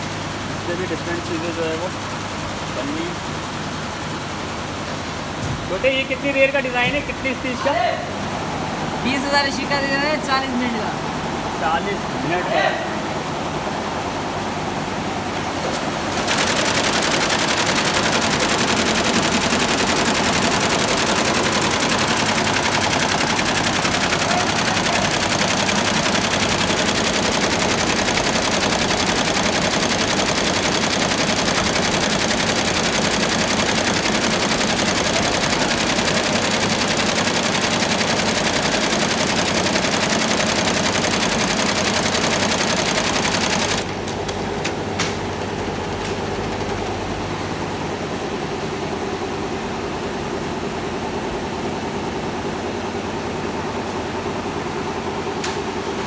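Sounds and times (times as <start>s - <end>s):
steady machine hum: 13.0s - 49.6s
embroidery machine needle clatter: 16.1s - 44.4s
machine clicks: 16.1s - 45.2s.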